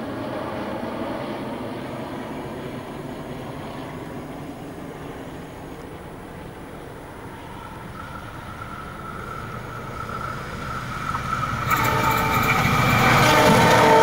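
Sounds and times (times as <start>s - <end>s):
diesel locomotive engine and wheels: 0.0s - 14.0s
train horn tones: 7.4s - 14.0s.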